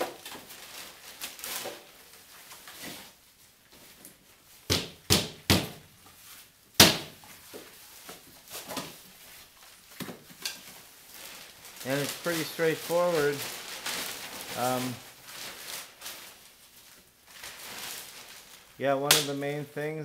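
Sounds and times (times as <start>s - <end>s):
plastic bag rustling: 0.0s - 5.0s, 5.8s - 20.0s
drywall pieces knocking: 4.7s - 5.8s, 6.8s - 7.2s.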